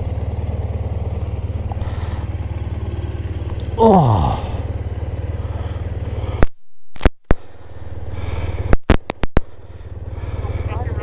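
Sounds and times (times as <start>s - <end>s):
motorcycle engine idling: 0.0s - 6.5s, 7.4s - 11.0s
sharp clicks and knocks: 8.7s - 9.5s.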